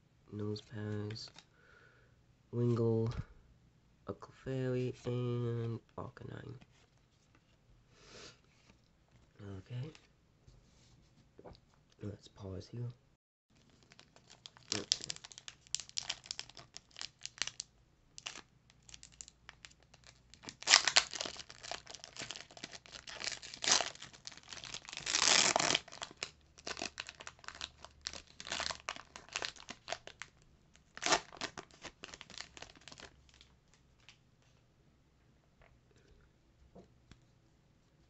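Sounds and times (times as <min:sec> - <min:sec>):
foil wrapper crinkling: 0:13.6 - 0:33.5
foil wrapper tearing: 0:13.7 - 0:17.6, 0:18.2 - 0:30.3, 0:30.9 - 0:33.4.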